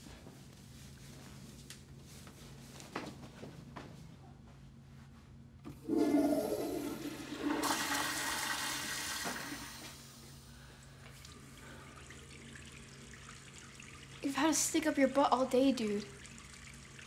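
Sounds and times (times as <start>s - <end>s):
toilet flushing: 5.7s - 10.4s, 11.2s - 14.8s, 16.1s - 17.0s.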